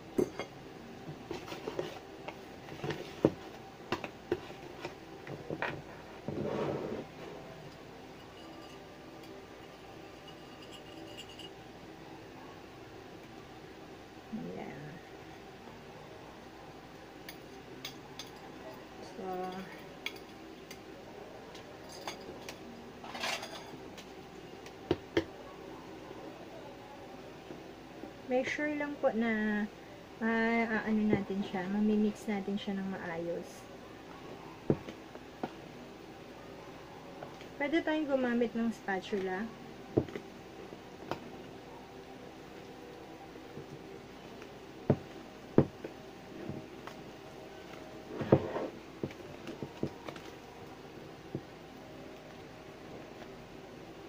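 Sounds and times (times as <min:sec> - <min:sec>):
bowls clinking: 0:08.2 - 0:11.6, 0:21.9 - 0:23.8
wire whisk in bowl: 0:08.2 - 0:11.6
bowl clattering: 0:23.0 - 0:23.8.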